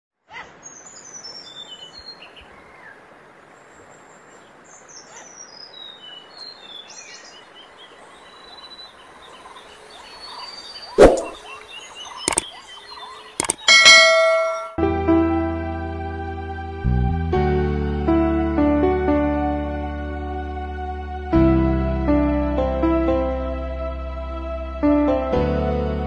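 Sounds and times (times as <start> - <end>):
birds chirping and trilling: 0.3 - 14.7
sharp clicks: 12.2 - 12.5, 13.4 - 14.0.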